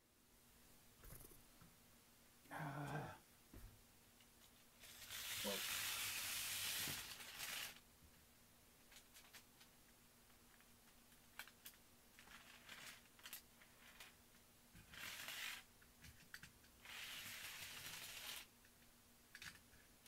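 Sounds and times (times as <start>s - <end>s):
faint even hiss: 0.0s - 20.0s
plastic clicks and rubbing: 18.6s - 19.7s.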